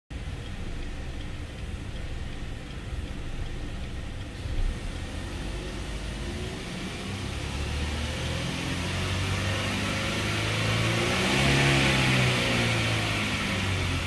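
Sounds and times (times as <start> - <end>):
car engine idling: 0.1 - 11.1.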